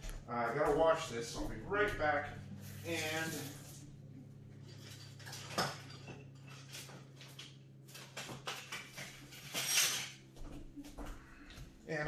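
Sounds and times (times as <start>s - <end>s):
steady low hum: 0.0s - 12.0s
dishes and utensils clinking: 4.7s - 7.4s, 8.4s - 10.2s.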